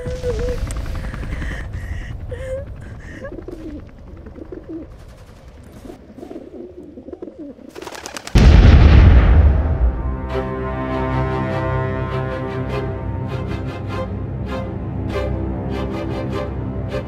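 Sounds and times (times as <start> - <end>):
dove cooing: 2.3 - 8.2
loud rumbling explosion: 8.4 - 10.5.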